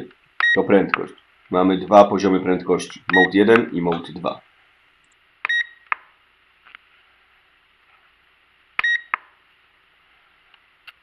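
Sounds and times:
remote control beeping: 0.4 - 1.1, 3.0 - 3.4, 5.5 - 6.0, 8.8 - 9.2.

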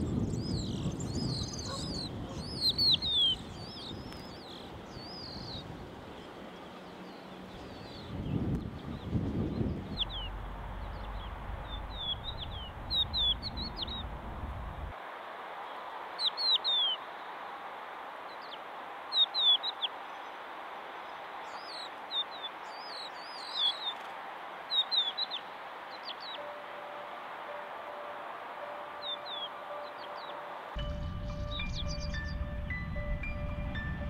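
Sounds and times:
birds chirping: 0.0 - 14.9, 21.0 - 24.1, 24.7 - 26.6, 27.5 - 34.0
steady outdoor hiss: 0.0 - 34.0
low rumble: 9.0 - 14.9, 30.8 - 34.0.

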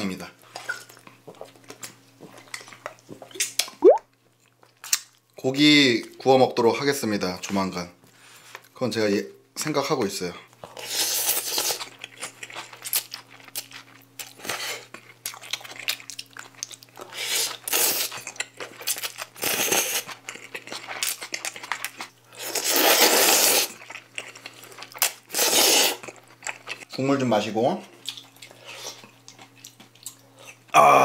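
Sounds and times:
noodles slurped loudly: 22.4 - 23.8, 25.3 - 26.0.

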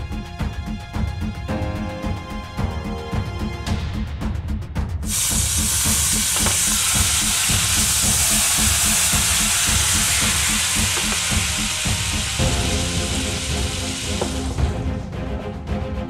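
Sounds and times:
background music with a beat: 0.0 - 16.0
vinegar sizzling in a hot pan: 5.1 - 14.6.

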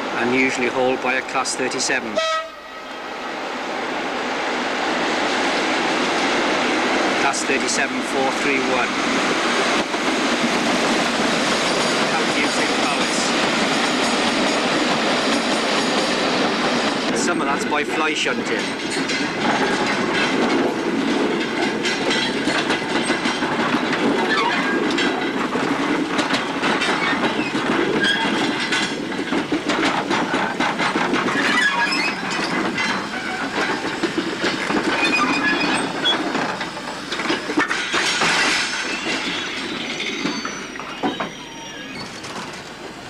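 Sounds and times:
train wheels clattering over rail joints: 4.8 - 41.4, 42.0 - 43.0
wheels squealing on rail: 11.6 - 14.7, 24.2 - 25.2, 26.4 - 29.0, 30.1 - 43.0.

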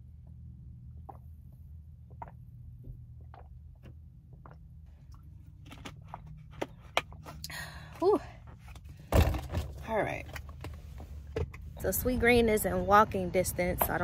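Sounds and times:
low hum inside a car: 0.0 - 14.0
person gulping water: 0.9 - 5.3.

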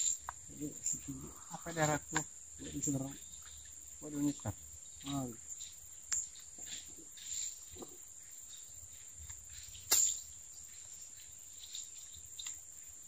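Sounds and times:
insects chirring: 0.0 - 13.0
sharp click: 9.9 - 10.2.

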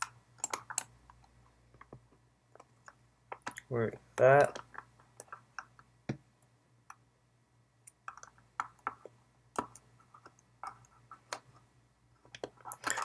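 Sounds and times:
fingernails tapping plastic mouse: 7.9 - 11.6.

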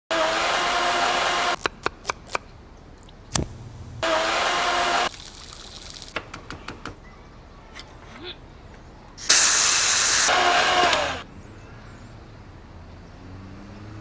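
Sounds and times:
blender motor running: 0.1 - 1.6, 3.6 - 5.1, 10.1 - 11.2.

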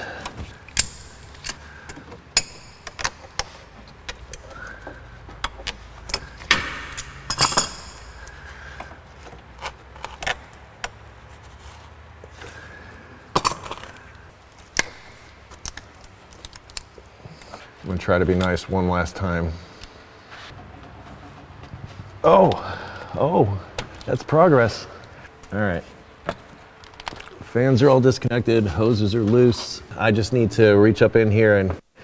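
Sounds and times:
hand tools clinking on metal: 0.1 - 9.0.

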